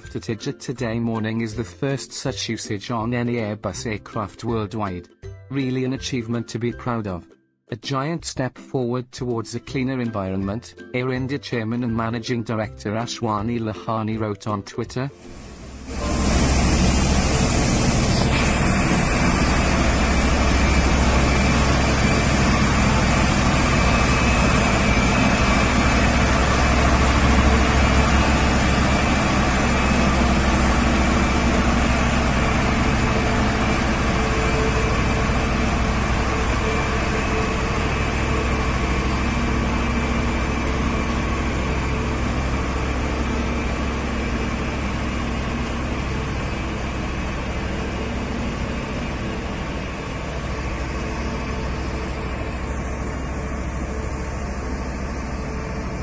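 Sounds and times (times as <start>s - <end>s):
aircraft tractor engine rumble: 15.3s - 56.0s.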